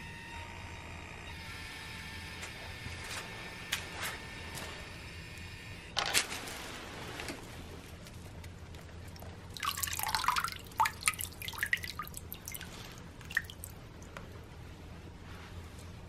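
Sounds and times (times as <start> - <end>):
water splashing: 9.2 - 14.0
water drops dripping: 9.2 - 14.1.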